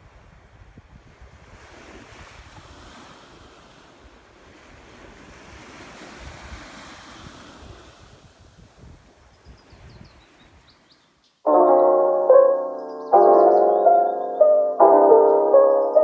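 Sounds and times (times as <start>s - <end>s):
wind rumble on microphone: 0.0s - 10.7s
ocean surf washing ashore: 1.3s - 9.0s.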